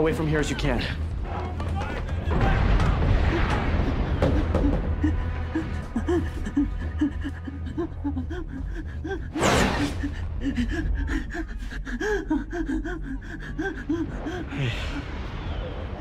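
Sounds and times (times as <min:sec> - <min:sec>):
steady low rumble: 0:10.0 - 0:16.0.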